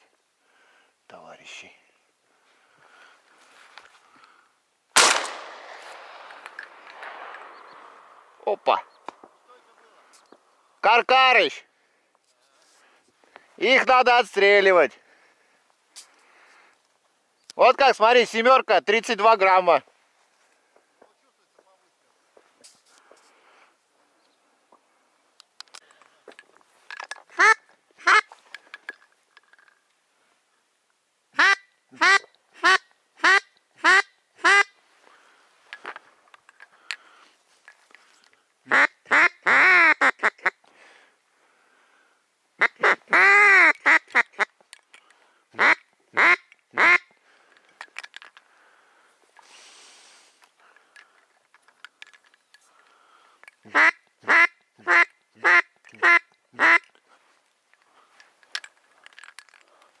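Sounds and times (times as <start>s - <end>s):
faint rustling: 2.0s - 4.5s, 19.8s - 30.6s
duck quacking: 27.3s - 28.3s, 31.4s - 34.7s, 38.7s - 40.6s, 42.6s - 44.5s, 45.6s - 47.1s, 53.7s - 56.9s.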